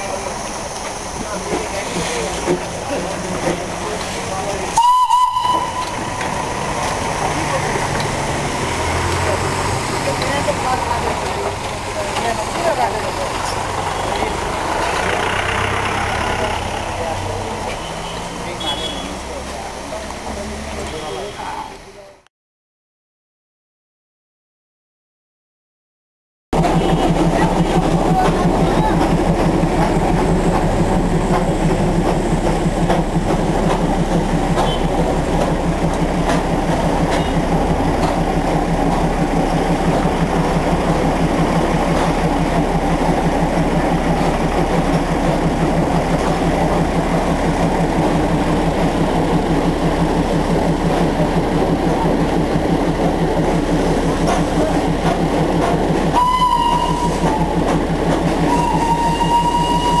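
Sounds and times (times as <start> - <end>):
steam locomotive running: 0.0 - 22.1, 26.6 - 60.0
shrill steam whistle: 4.8 - 6.3, 56.1 - 57.6, 58.5 - 60.0.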